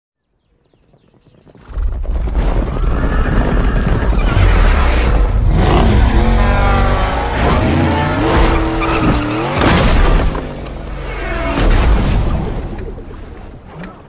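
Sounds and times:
horse whinnying: 2.6 - 4.7.

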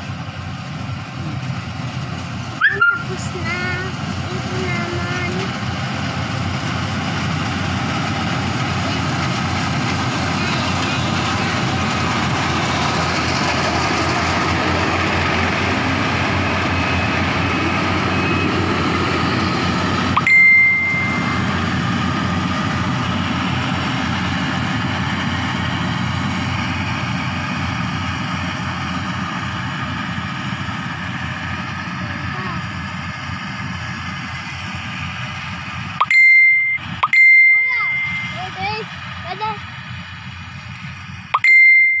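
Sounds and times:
combine harvester engine running: 0.0 - 42.0
high-pitched beep: 20.2 - 21.6, 36.0 - 38.6, 41.4 - 42.0.

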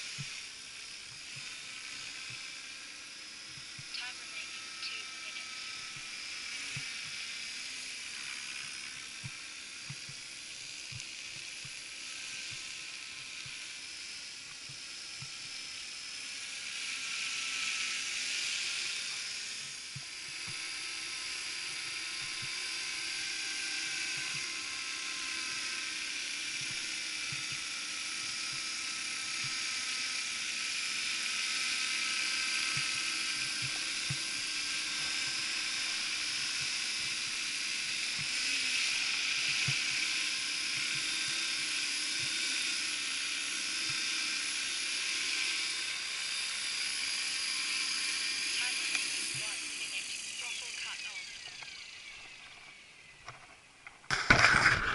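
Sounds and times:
rc helicopter motor whine: 0.0 - 54.9.

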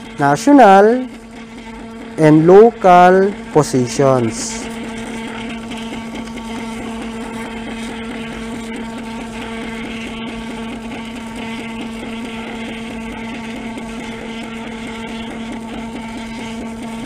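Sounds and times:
receipt printer whine and ticking: 0.0 - 17.0.

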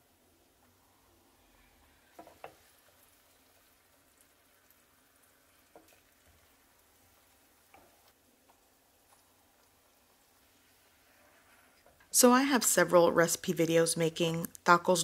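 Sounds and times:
oil sizzling in a skillet: 0.0 - 13.1
wooden spatula knocking on pan: 2.2 - 2.6.

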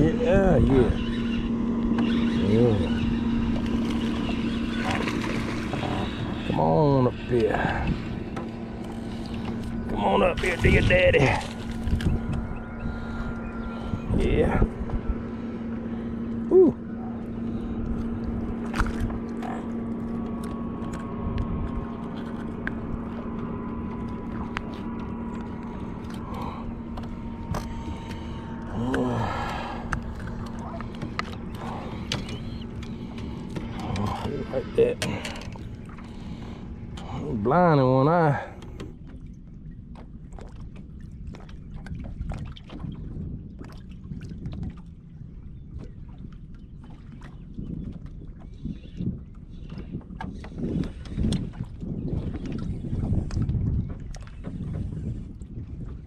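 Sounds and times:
low boat hum: 0.0 - 56.0
small waves lapping against hull: 0.0 - 56.0
wind rumble on microphone: 0.0 - 56.0
fishing tackle clicks and scrapes: 29.9 - 36.1.

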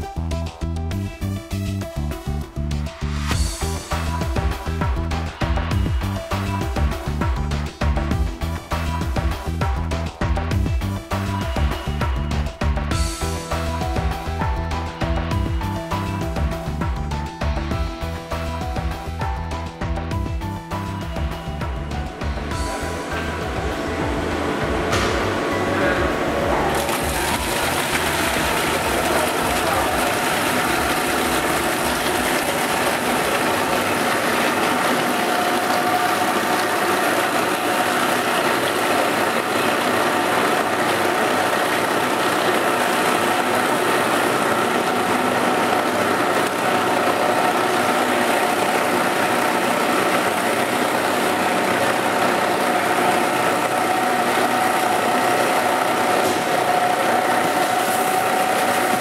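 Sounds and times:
steady machine whine: 20.5 - 59.0.

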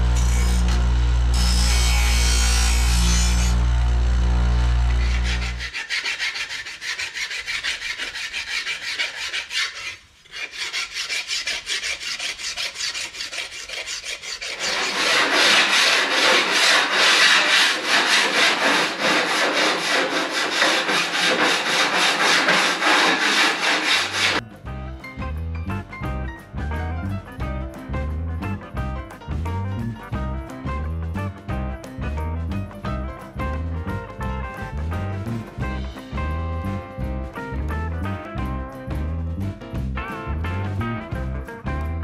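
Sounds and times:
file rasping on metal: 0.0 - 3.6, 4.8 - 24.4.

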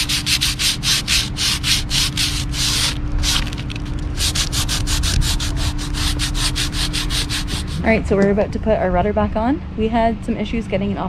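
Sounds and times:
sandpaper rubbing by hand: 0.0 - 7.9.

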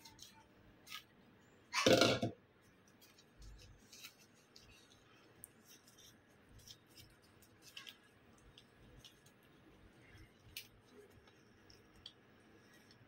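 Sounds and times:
ticks of leaf being creased: 2.8 - 13.0
leaves rustling and crinkling: 3.0 - 11.9.

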